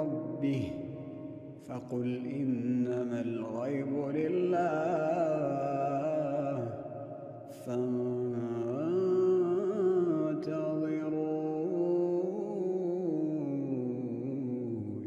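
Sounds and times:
man chanting melodically: 0.0 - 6.9, 7.5 - 15.0.

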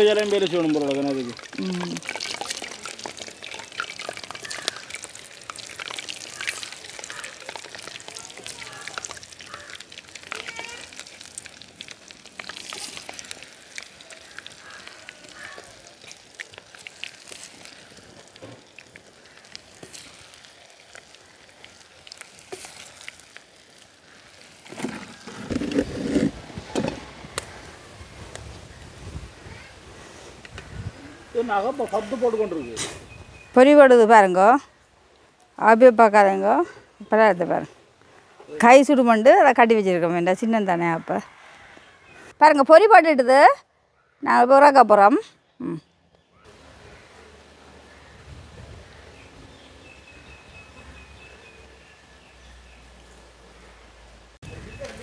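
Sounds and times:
food deep-frying in hot oil: 0.0 - 26.5.

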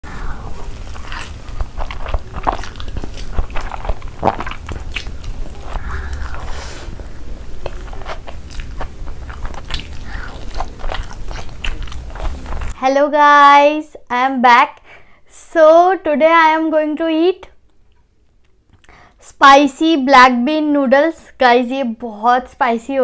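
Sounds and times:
low steady hum: 0.0 - 19.2
crunchy eating and chewing: 0.2 - 12.8.

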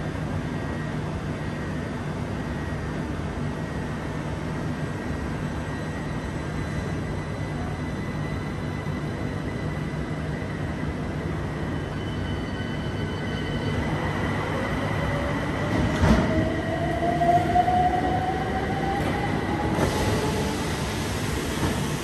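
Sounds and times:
train low hum: 0.0 - 22.0
train doors closing with thuds: 15.6 - 16.6.

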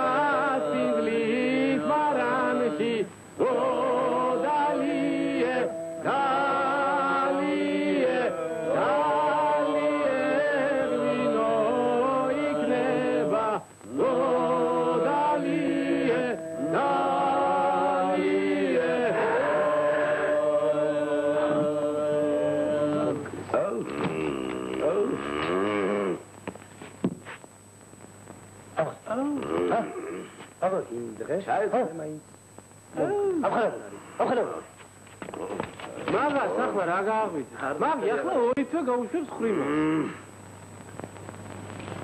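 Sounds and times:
men singing in harmony: 0.0 - 24.9.

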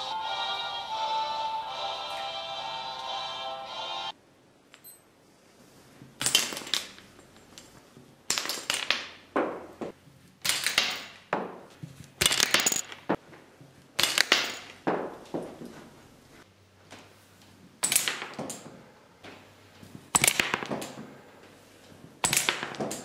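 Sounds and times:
plastic figures clattering knocks: 22.3 - 23.0.

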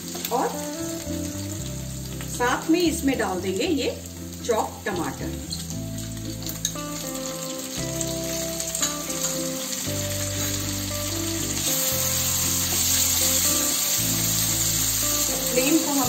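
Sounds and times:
food sizzling in hot oil: 0.0 - 16.0
soft background music: 0.0 - 16.0
spatula scraping wok: 5.6 - 16.0.

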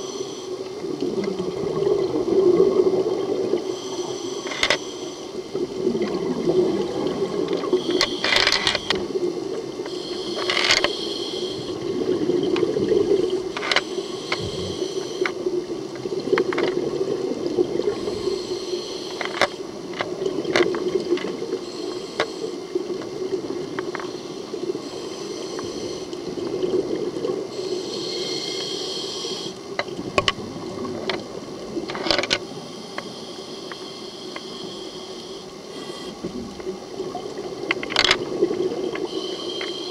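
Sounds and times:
bubbles: 0.8 - 3.6, 5.5 - 7.8, 11.8 - 13.5, 14.4 - 14.8
small clicks: 4.4 - 4.8, 7.9 - 9.0, 9.8 - 11.1, 13.5 - 15.4, 16.2 - 16.9, 19.0 - 21.4, 37.6 - 39.9
scuba regulator breathing: 9.9 - 11.9, 13.5 - 15.4, 17.9 - 19.6, 21.6 - 22.6, 24.1 - 26.3, 27.5 - 29.7, 32.8 - 36.3, 39.0 - 39.9.

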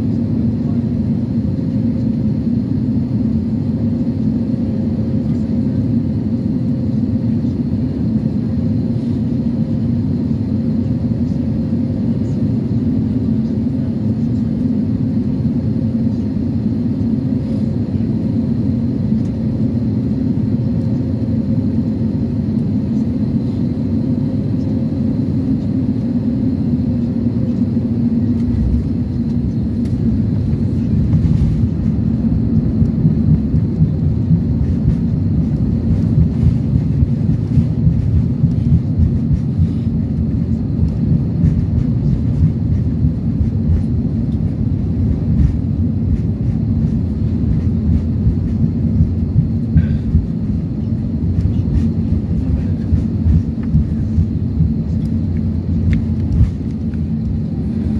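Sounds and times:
airplane cabin engine hum: 0.0 - 57.9
jet rolling on runway rumble: 13.4 - 57.9.

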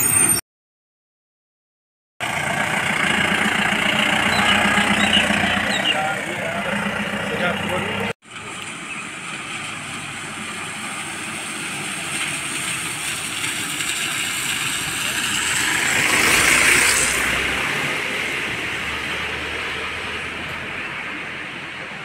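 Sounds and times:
car tyres hissing on wet road: 8.4 - 20.1.

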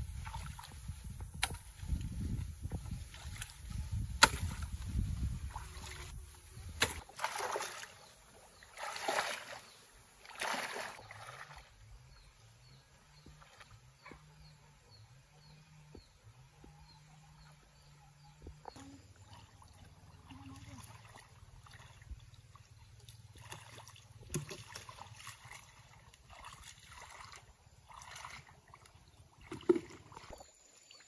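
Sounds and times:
hoe chopping into mud: 1.3 - 1.7, 3.9 - 4.8, 6.7 - 7.8
water splashing from wading: 5.4 - 11.8, 18.9 - 30.4.

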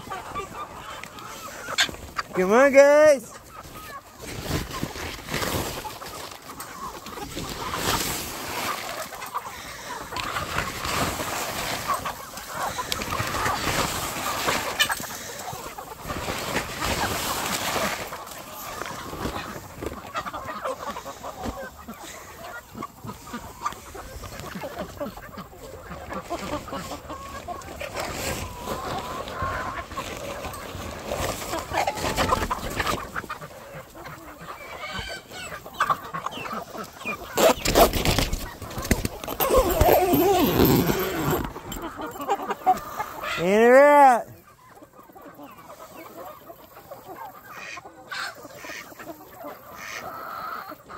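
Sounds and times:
chickens clucking and calling: 0.0 - 50.9
ducks honking: 0.0 - 50.9
tarp rustling: 3.5 - 20.5, 25.2 - 33.4, 36.6 - 42.4.

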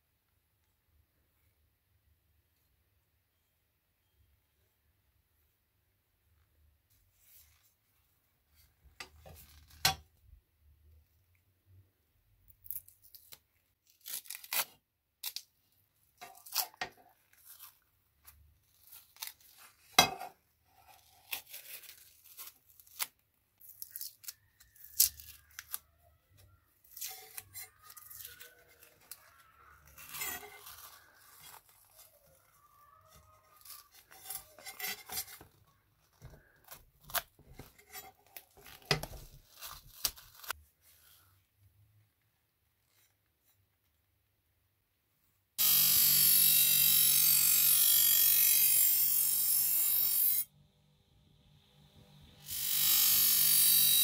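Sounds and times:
protective film peeling: 13.1 - 15.5, 18.6 - 19.9, 26.8 - 40.6.

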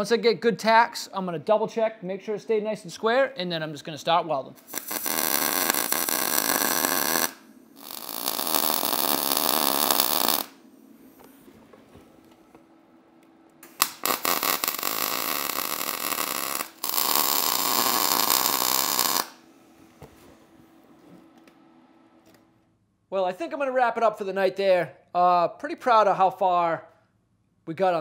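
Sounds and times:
faint steady hum: 0.0 - 28.0
crackling welding arc: 4.6 - 11.5, 13.6 - 19.5.

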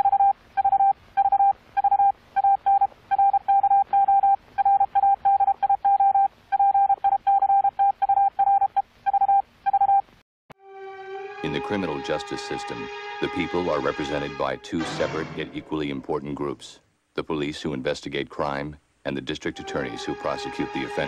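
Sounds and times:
morse code beeps: 0.0 - 10.0.

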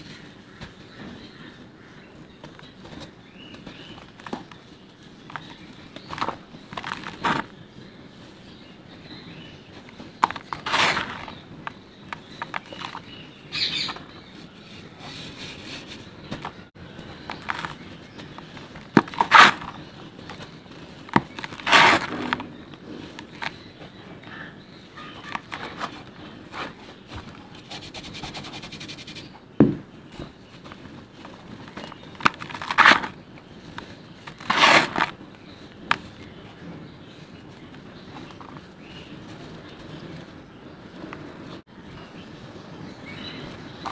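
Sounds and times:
hands crumbling dry dirt: 10.2 - 13.1, 17.2 - 22.5, 30.7 - 33.2.

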